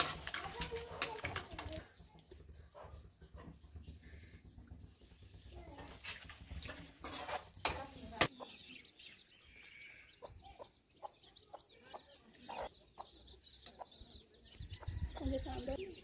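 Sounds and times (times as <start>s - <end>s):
chickens clucking: 10.0s - 16.0s.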